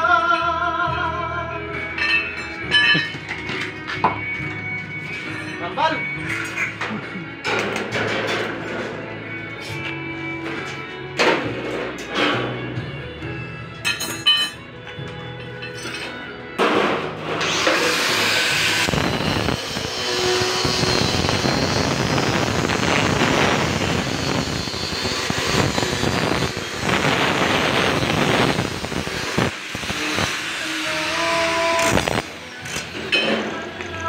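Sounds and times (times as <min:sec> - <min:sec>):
angle grinder cutting steel: 0:17.2 - 0:34.0.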